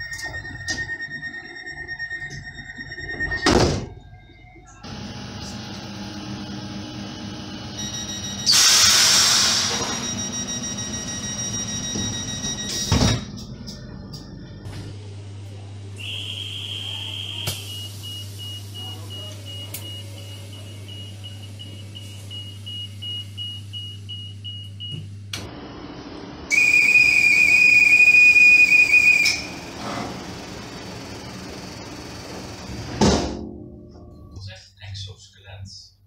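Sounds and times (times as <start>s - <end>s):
high whistle tone: 26.5s - 29.7s.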